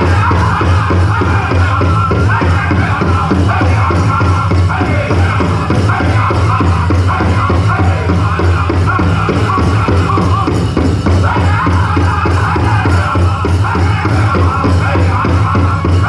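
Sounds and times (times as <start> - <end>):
drum group singing: 0.0 - 16.0
steady beat on large drum: 0.0 - 16.0.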